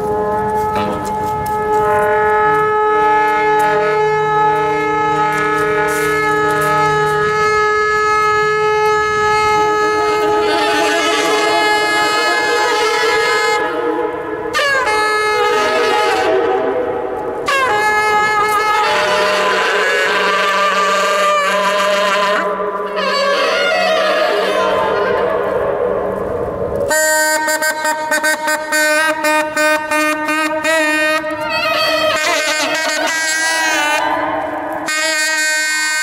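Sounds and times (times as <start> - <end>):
saxophone sustained notes: 0.0 - 36.0.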